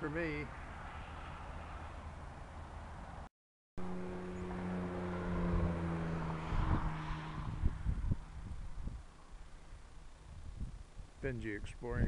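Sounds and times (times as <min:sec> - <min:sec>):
low engine drone: 0:03.8 - 0:11.4.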